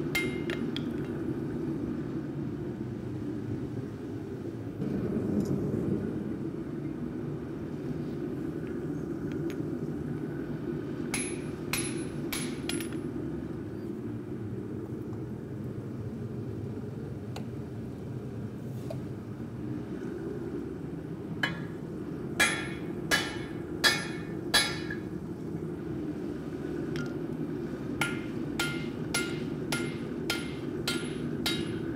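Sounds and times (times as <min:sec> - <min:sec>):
steady low rumble: 0:00.0 - 0:31.9
hammer clanging on hot steel: 0:00.1 - 0:00.9, 0:11.1 - 0:13.0, 0:21.4 - 0:21.8, 0:22.4 - 0:25.1, 0:28.0 - 0:31.9.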